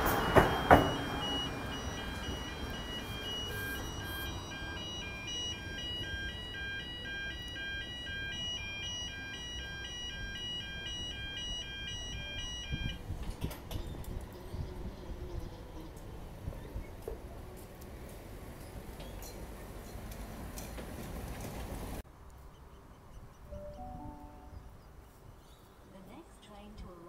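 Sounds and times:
two-note railway warning alarm: 0:00.0 - 0:13.2.

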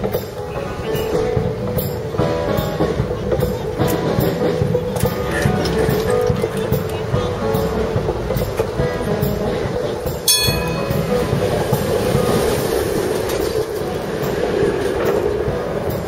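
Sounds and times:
streetcar wheels rumbling on rails: 0:00.0 - 0:16.0
sharp metallic clang: 0:10.3 - 0:11.3.

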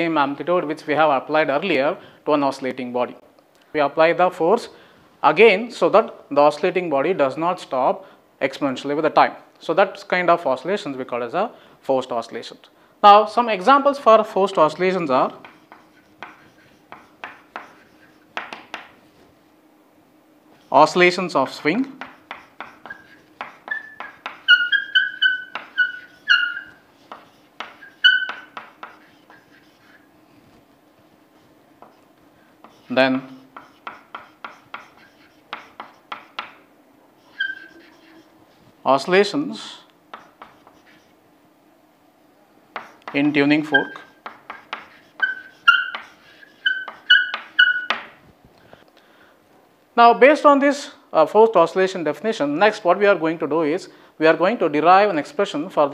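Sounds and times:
chalk squeaking: 0:13.4 - 0:19.0, 0:20.6 - 0:21.0, 0:21.6 - 0:32.0, 0:32.6 - 0:36.6, 0:37.2 - 0:38.7, 0:40.1 - 0:41.2, 0:42.8 - 0:48.2
chalk tapping and scraping: 0:14.2 - 0:19.3, 0:21.6 - 0:32.0, 0:32.6 - 0:36.6, 0:37.2 - 0:38.8, 0:40.1 - 0:41.1, 0:42.7 - 0:48.9.

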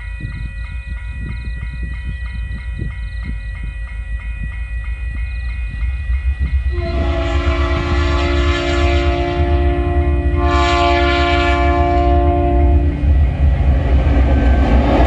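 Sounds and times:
level crossing warning bell: 0:00.0 - 0:13.2
diesel locomotives rumbling: 0:00.0 - 0:15.0
locomotive horn chord: 0:06.7 - 0:13.0.

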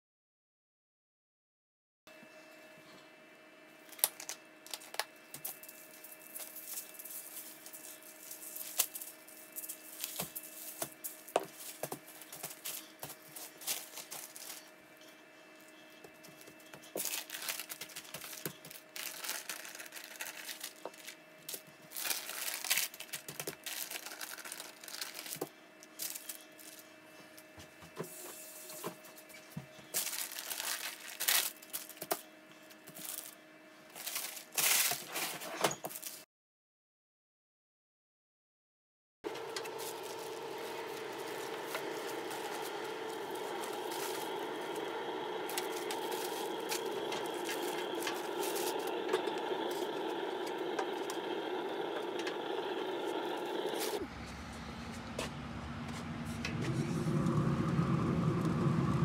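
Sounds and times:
paper crinkling and rustling: 0:03.9 - 0:14.7, 0:16.4 - 0:26.9, 0:29.9 - 0:32.2, 0:33.9 - 0:36.2, 0:39.3 - 0:50.6
faint steady hum: 0:39.3 - 0:59.0.

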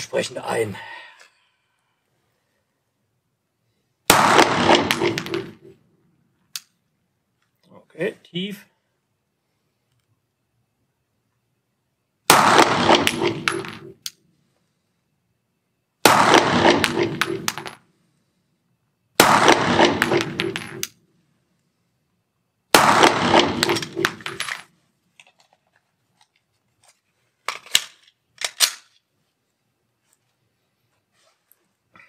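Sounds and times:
pistol shots with echo: 0:04.1 - 0:05.7, 0:12.3 - 0:14.0, 0:16.0 - 0:17.8, 0:19.2 - 0:20.8, 0:22.7 - 0:24.5.

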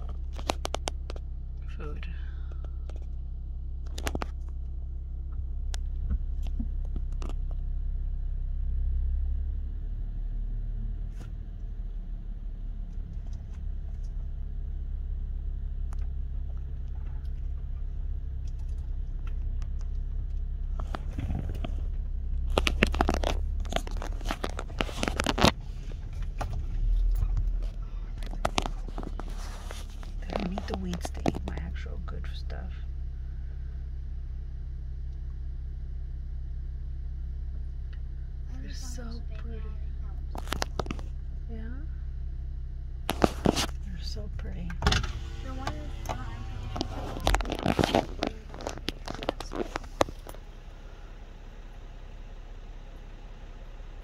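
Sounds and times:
car engine idling: 0:00.0 - 0:54.0
crunching and scraping: 0:16.0 - 0:31.8, 0:40.2 - 0:41.2, 0:43.0 - 0:44.0, 0:45.5 - 0:50.6.

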